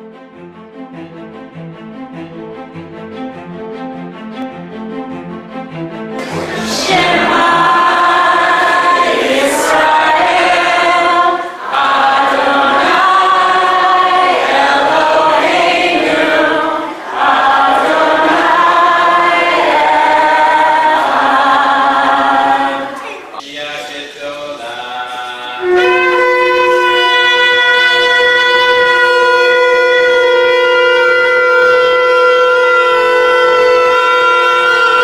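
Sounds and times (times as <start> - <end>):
choir singing: 6.2 - 28.2.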